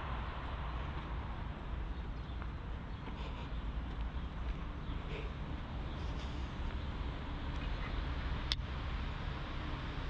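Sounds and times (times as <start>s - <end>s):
outdoor background rumble: 0.0s - 10.0s.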